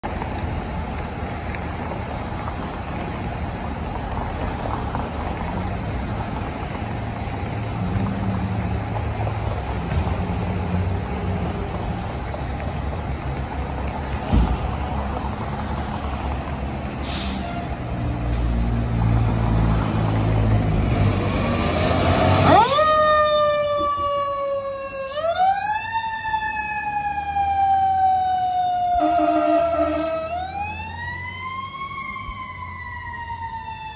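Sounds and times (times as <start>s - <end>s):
siren wailing: 22.3s - 33.9s.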